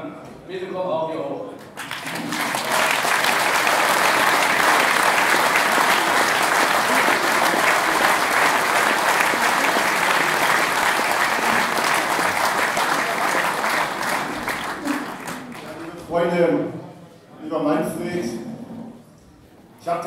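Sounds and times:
crowd applauding: 1.6 - 16.0.

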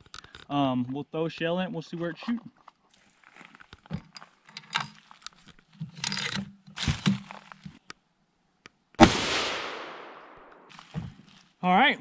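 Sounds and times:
handling rustles and shuffles: 1.7 - 7.9, 10.6 - 11.6.

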